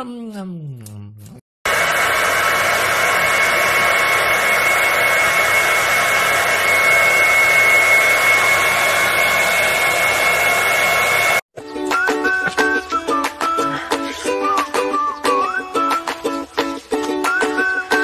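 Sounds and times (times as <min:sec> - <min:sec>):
hair dryer blowing: 0:01.7 - 0:11.4.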